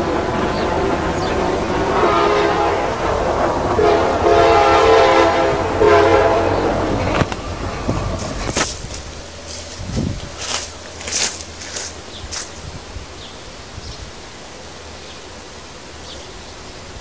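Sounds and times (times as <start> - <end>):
train rumble: 0.0 - 17.0
locomotive air horn blasts: 1.9 - 3.0, 3.7 - 6.8.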